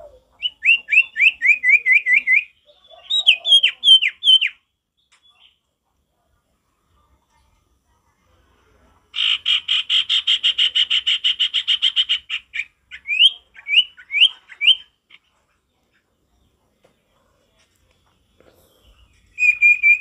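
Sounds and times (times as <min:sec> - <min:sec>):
bird trilling: 0:09.2 - 0:15.2, 0:19.3 - 0:20.0
bird rising whistles: 0:19.4 - 0:20.0.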